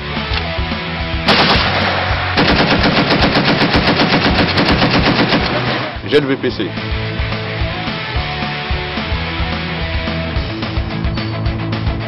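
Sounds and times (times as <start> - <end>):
machine gun firing burst: 1.3 - 5.9.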